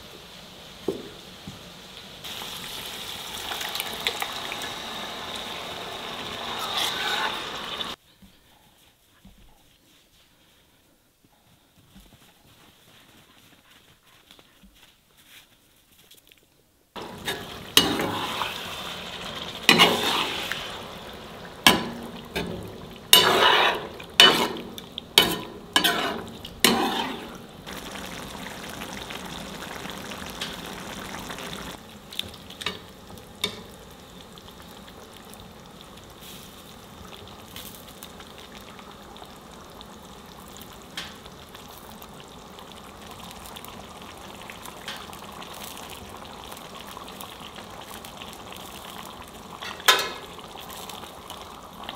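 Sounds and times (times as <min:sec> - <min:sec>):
sauce sizzling in a pan: 0:00.0 - 0:08.0, 0:17.0 - 0:51.9
metal spoon scraping a pan: 0:06.6 - 0:07.7, 0:17.0 - 0:18.7, 0:19.7 - 0:20.6, 0:21.7 - 0:27.5.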